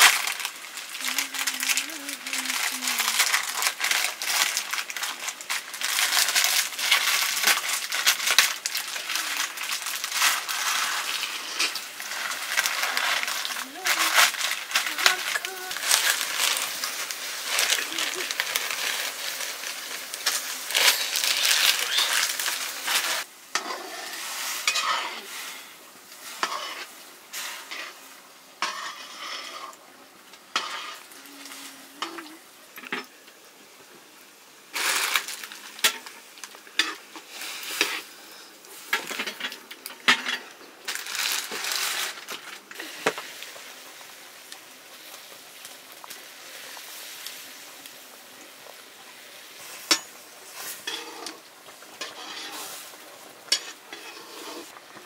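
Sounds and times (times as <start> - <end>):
food sizzling in a pan: 0.0 - 55.0
utensil scraping and clinking pan: 20.2 - 25.3, 28.6 - 29.8, 49.7 - 52.9, 53.5 - 54.8.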